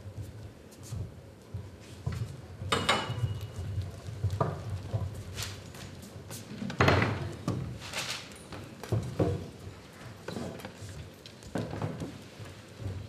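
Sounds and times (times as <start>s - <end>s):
footsteps on stage floor: 0.0s - 13.0s.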